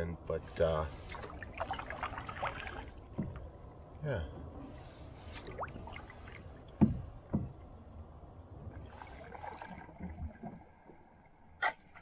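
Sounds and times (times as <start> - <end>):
paddle in water: 0.9 - 12.0
paddle knocking on canoe: 3.1 - 3.4, 6.8 - 7.6.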